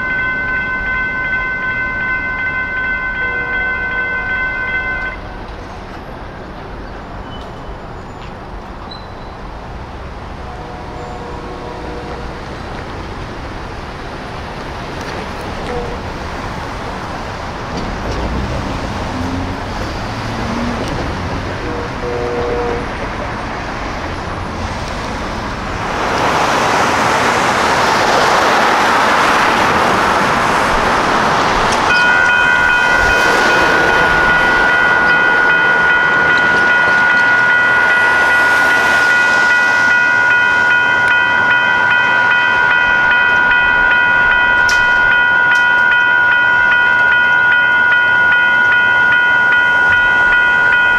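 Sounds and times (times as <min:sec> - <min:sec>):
crossing warning bell ringing: 0:00.0 - 0:06.2, 0:30.6 - 0:50.9
street noise: 0:00.0 - 0:50.9
broad rushing sound: 0:37.2 - 0:43.0.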